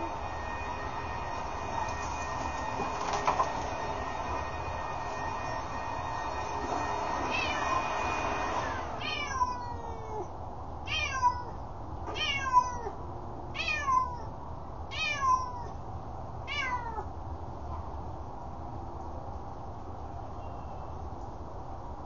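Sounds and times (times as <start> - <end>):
leaf blower running: 0.0 - 9.0
cat meowing: 7.3 - 7.6, 9.0 - 10.3, 10.9 - 14.3, 14.9 - 15.8, 16.5 - 17.1.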